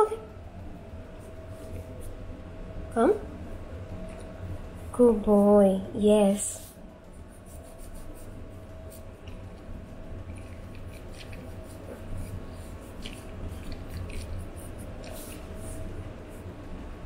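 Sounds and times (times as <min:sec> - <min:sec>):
toothbrush scrubbing teeth: 0:07.4 - 0:15.9.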